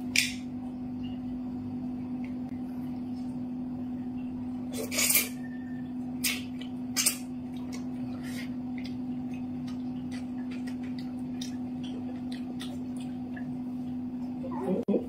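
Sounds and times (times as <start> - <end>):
eating and chopsticks clicking: 8.7 - 14.0.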